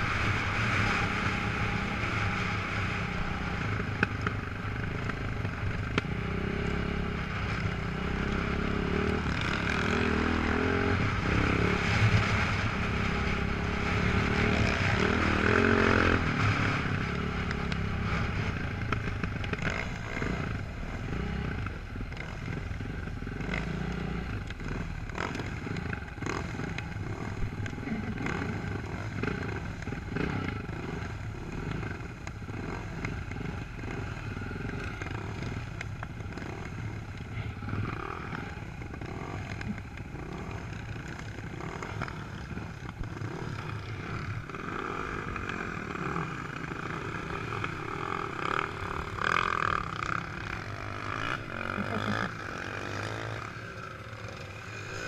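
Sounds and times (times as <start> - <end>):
clatter over bumpy ground: 0.0 - 10.3, 11.0 - 55.0
off-road engines running: 0.0 - 55.0.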